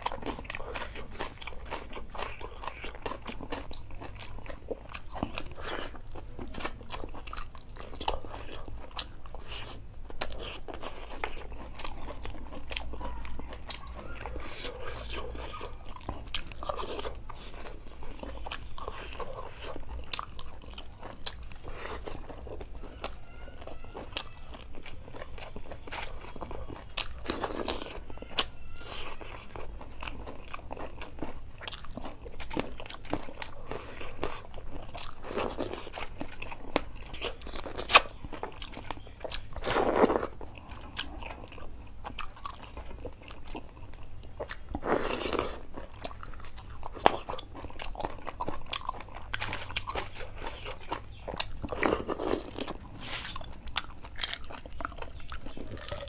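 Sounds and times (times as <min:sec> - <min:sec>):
person chewing and crunching: 0:00.0 - 0:56.0.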